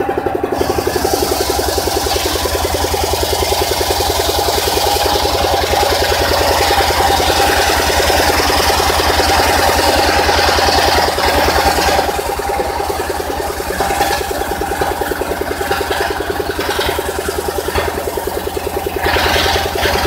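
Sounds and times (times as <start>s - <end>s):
engine thumping: 0.0s - 20.0s
saw blade ripping log: 0.5s - 12.8s.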